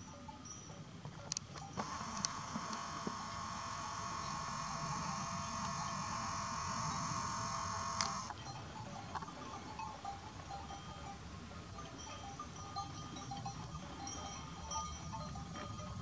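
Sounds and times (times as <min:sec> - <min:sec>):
flock bells tinkling: 0:00.0 - 0:16.0
steady high hum: 0:01.8 - 0:08.4
sharp click: 0:08.0 - 0:08.3.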